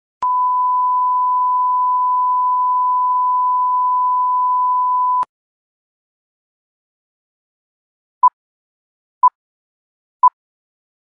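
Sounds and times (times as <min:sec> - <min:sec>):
steady test tone beep: 0:00.2 - 0:05.3.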